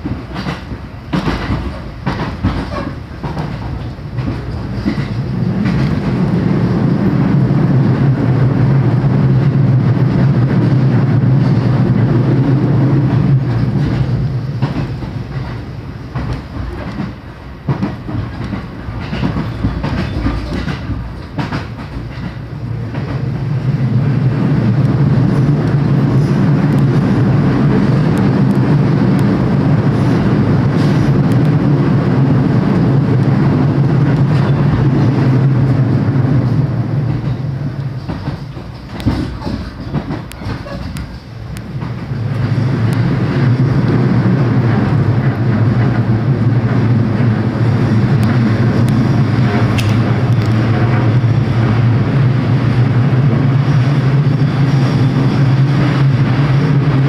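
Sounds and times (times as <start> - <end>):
train wheels knocking over rail joints: 0.0 - 6.3, 13.1 - 23.2, 38.0 - 42.1
low steady train drone: 0.0 - 57.0.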